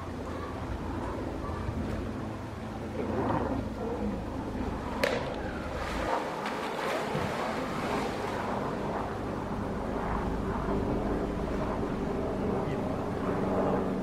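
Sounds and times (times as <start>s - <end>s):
water churning: 0.0s - 9.7s
sharp splash: 5.0s - 8.5s.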